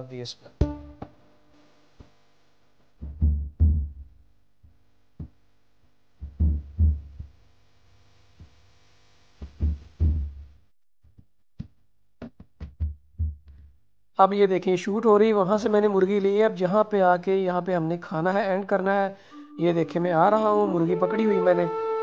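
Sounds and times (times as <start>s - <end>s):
slow drum-machine beat: 0.6s - 1.2s, 3.0s - 4.0s, 6.2s - 7.3s, 9.4s - 10.4s, 12.6s - 13.5s.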